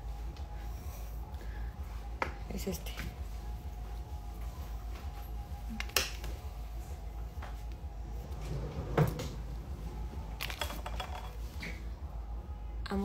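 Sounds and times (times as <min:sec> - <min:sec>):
rustling of handled things: 0:07.3 - 0:12.0.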